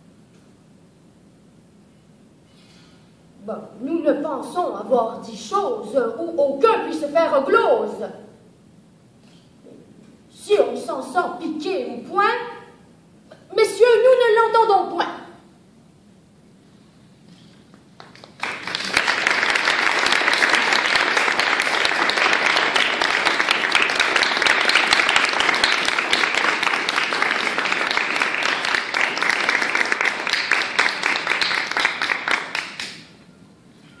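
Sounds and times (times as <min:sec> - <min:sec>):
audience applauding: 0:18.0 - 0:33.2.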